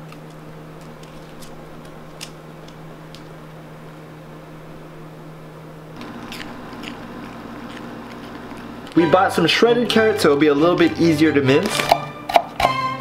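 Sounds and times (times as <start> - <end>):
steady hum: 0.0 - 13.0
dog licking and chewing: 6.0 - 9.0.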